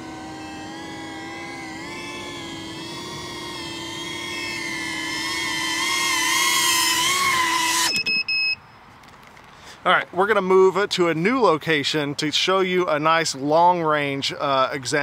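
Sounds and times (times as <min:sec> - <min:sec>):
drone motors and propellers whining: 0:00.0 - 0:08.3
low-battery alarm beeps: 0:07.8 - 0:08.8.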